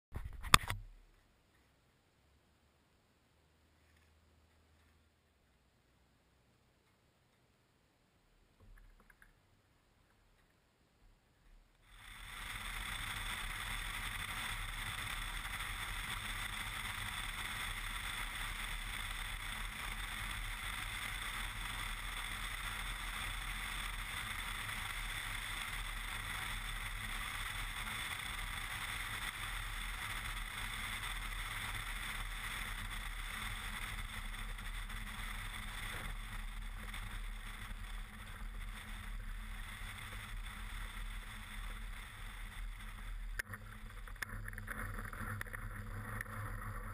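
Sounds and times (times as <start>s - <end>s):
propeller plane engine running: 11.9s - 46.9s.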